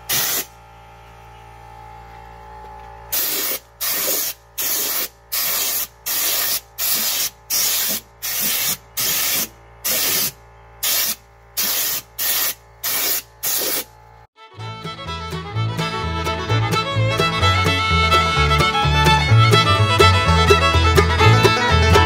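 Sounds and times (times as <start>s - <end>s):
spray gun hissing bursts: 0.0s - 0.6s, 3.1s - 13.9s.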